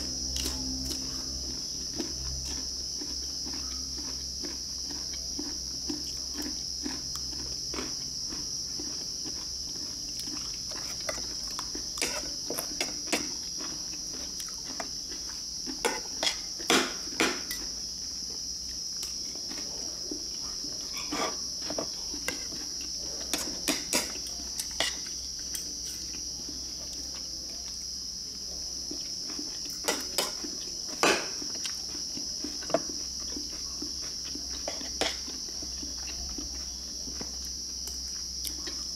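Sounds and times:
crickets chirring: 0.0 - 38.9.

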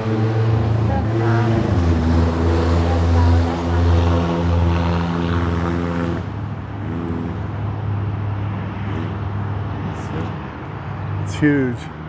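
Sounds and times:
faint wavering engine: 0.0 - 12.0
low engine drone: 0.0 - 12.0.

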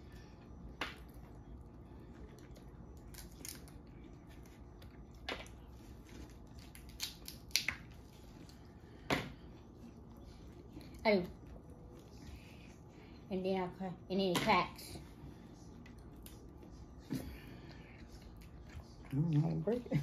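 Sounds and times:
shells cracking and snapping: 3.0 - 3.7, 6.6 - 7.9.

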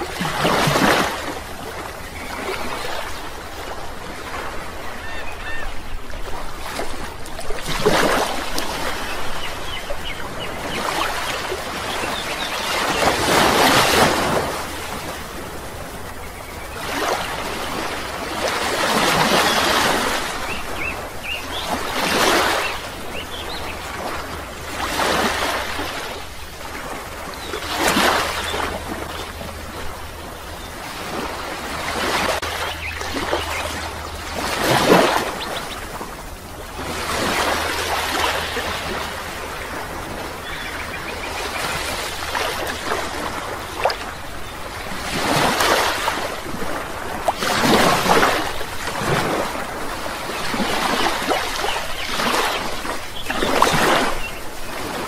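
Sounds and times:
waves washing in: 0.0 - 55.0.

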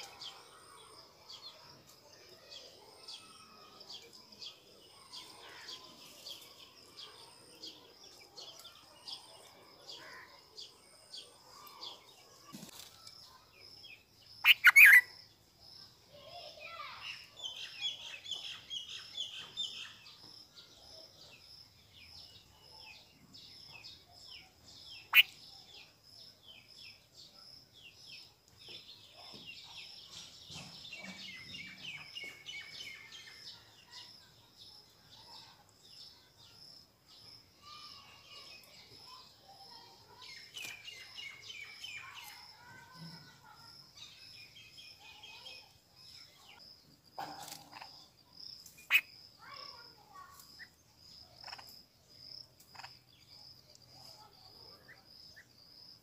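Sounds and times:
birds chirping and twittering: 0.0 - 56.0.

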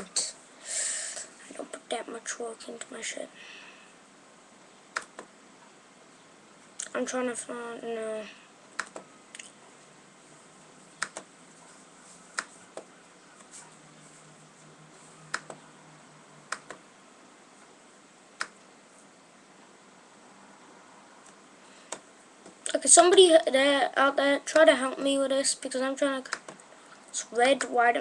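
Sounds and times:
faint low hum: 0.0 - 28.0
computer mouse clicks: 4.9 - 5.3, 8.8 - 9.5, 11.0 - 11.3, 15.3 - 15.6, 16.5 - 16.8.

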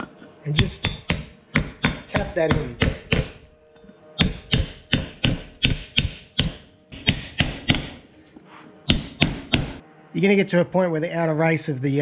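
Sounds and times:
hammer tapping nylon block: 0.6 - 3.4, 4.2 - 8.0, 8.9 - 9.8.

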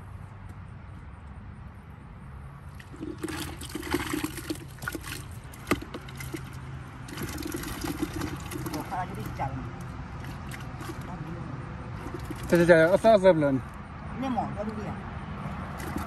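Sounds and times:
water splashing: 2.7 - 13.2, 15.7 - 16.0.

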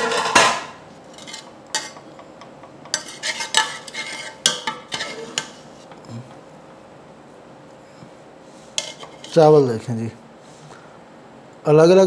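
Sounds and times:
metal spoon scraping a pot: 1.1 - 2.1, 2.9 - 5.7, 8.7 - 9.5.

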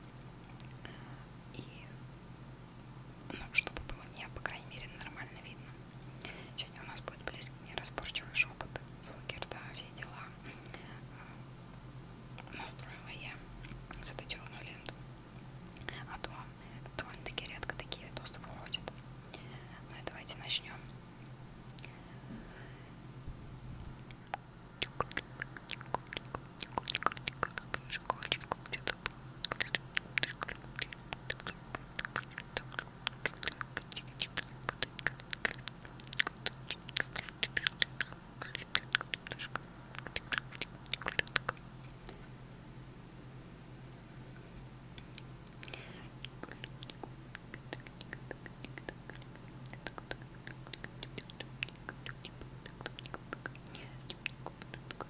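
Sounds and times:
steady low hum: 0.0 - 55.0
soft whispering: 0.5 - 2.0, 3.3 - 11.4, 12.4 - 15.0, 15.7 - 20.9, 21.7 - 22.9, 24.1 - 42.3, 45.0 - 55.0
wet mouth clicks and pops: 21.7 - 21.9, 24.0 - 42.2, 45.0 - 55.0.

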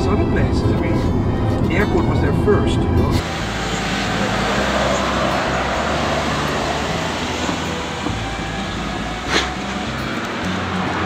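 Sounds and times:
traffic roar: 0.0 - 11.0
low engine hum: 0.2 - 11.0.

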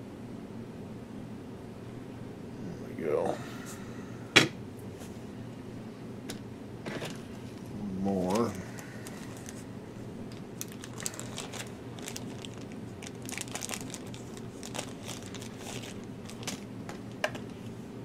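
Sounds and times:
steady low hum: 0.0 - 18.0
plastic bag crinkling: 8.2 - 9.7, 10.3 - 17.6.

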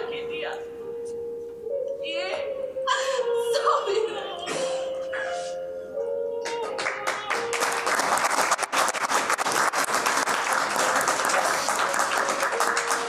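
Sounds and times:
audience applauding: 6.4 - 13.0.

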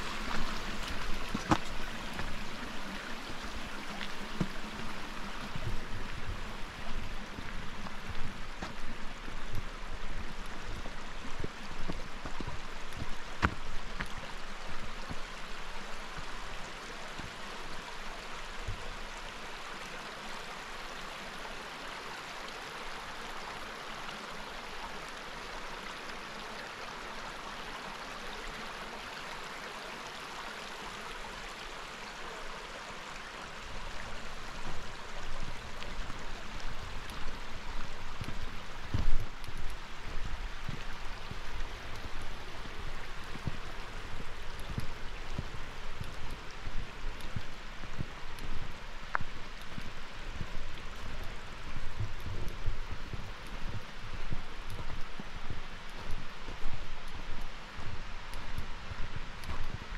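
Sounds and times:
stream running over rocks: 0.0 - 59.9.

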